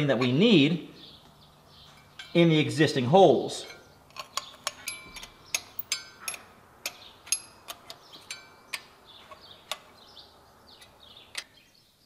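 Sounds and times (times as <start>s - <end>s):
metallic clicks and clinks: 3.6s - 10.0s.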